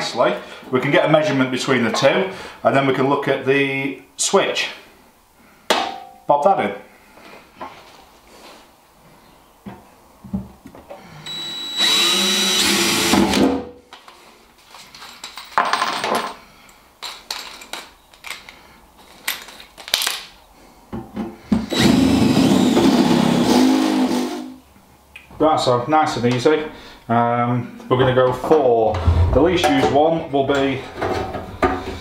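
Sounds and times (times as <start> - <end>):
cordless drill boring through steel: 11.2 - 13.4, 21.7 - 24.4.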